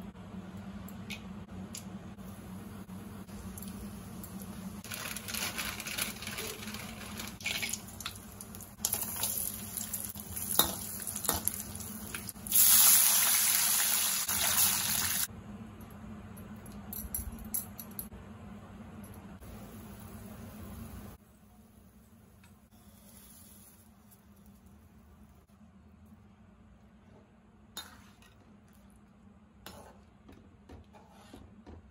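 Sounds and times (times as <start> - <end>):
spices sizzling in oil: 3.3 - 15.3, 22.8 - 24.7.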